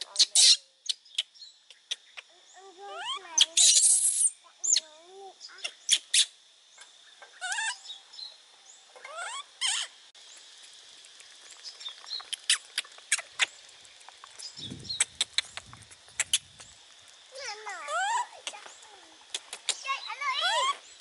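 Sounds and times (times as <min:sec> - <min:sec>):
baby monkey squeaking: 0:00.0 - 0:01.3, 0:02.9 - 0:04.8, 0:05.5 - 0:06.3, 0:07.3 - 0:07.8, 0:09.0 - 0:09.9, 0:17.9 - 0:18.3, 0:20.3 - 0:20.8
sharp clicks and crackles: 0:10.4 - 0:17.2, 0:18.4 - 0:19.9.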